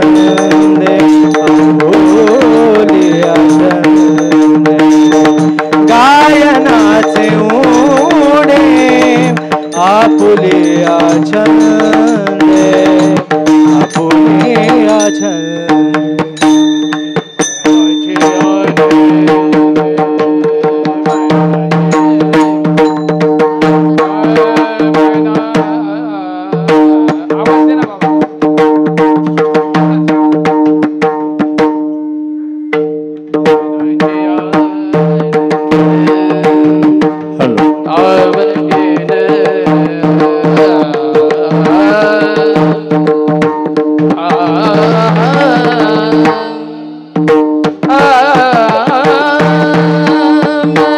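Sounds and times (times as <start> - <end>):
man singing: 0.0 - 16.8, 17.6 - 30.4, 33.3 - 50.9
small hand cymbals: 0.0 - 18.9, 21.0 - 24.8
fast hand-drum strokes: 0.0 - 32.1, 32.7 - 50.9.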